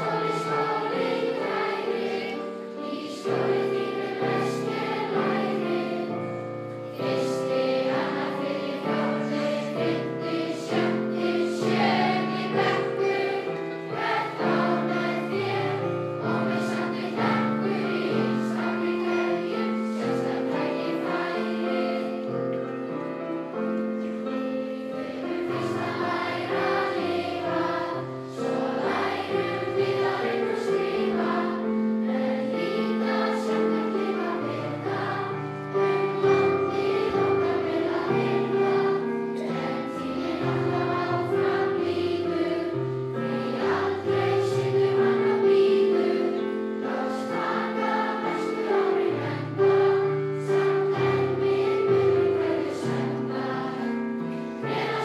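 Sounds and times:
crowd singing together: 0.0s - 55.0s
keyboard accompaniment: 0.0s - 55.0s.

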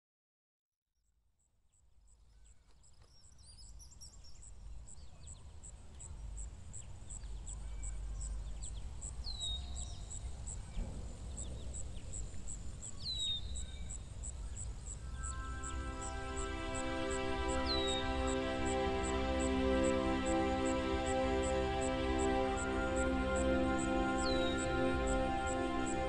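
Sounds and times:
birds chirping: 2.4s - 26.0s
low rumble: 10.6s - 13.1s.

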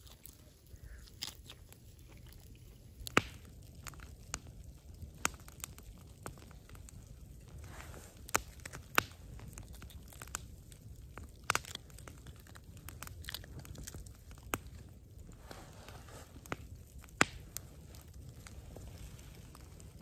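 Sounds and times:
hands tearing cooked food: 0.0s - 4.1s, 8.2s - 10.4s, 11.3s - 14.5s
low steady rumble: 0.0s - 20.0s.

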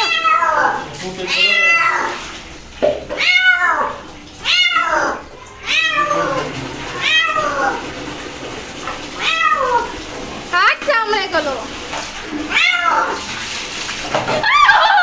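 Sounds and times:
cat meowing in distress: 0.0s - 2.2s, 3.2s - 6.4s, 7.0s - 7.8s, 9.2s - 9.9s, 12.5s - 13.2s.

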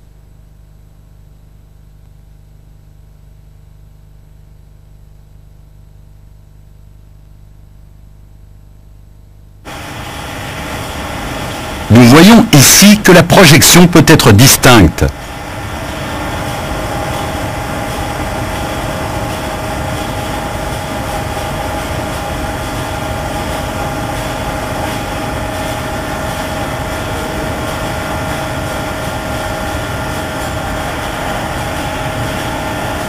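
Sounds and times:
steady mechanical drone: 9.6s - 33.0s.

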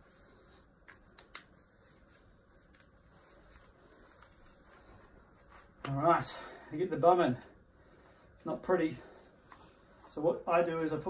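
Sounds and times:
fabric rustling: 0.0s - 6.5s.

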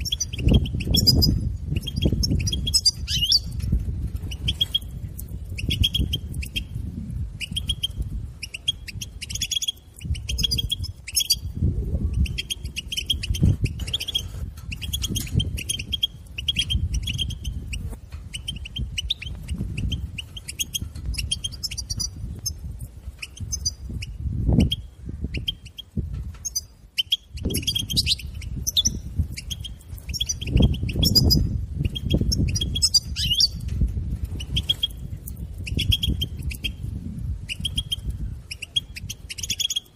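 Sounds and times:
goldfinch twittering: 0.0s - 3.6s, 7.4s - 11.5s, 12.1s - 22.6s, 26.4s - 33.6s, 37.5s - 39.9s.

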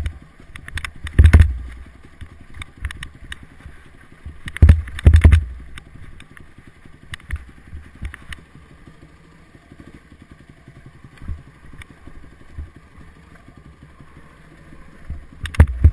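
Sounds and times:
motorcycle knocking over stones: 0.0s - 3.1s, 4.4s - 5.8s, 15.4s - 15.9s
motorcycle engine at low revs: 0.0s - 15.9s.

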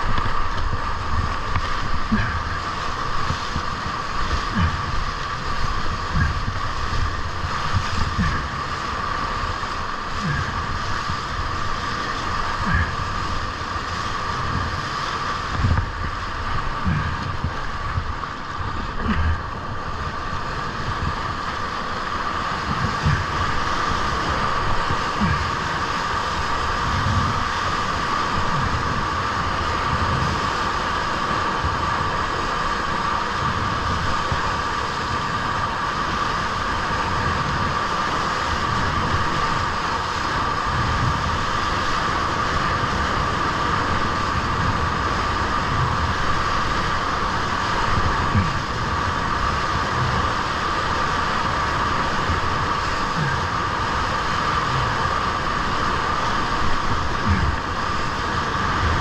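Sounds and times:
whitewater rushing: 0.0s - 59.0s.

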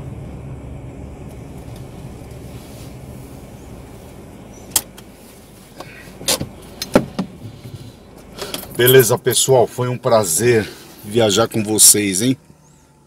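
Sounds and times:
car engine rumble: 0.0s - 13.0s
sharp clicks inside car: 4.6s - 5.1s, 5.8s - 8.8s.

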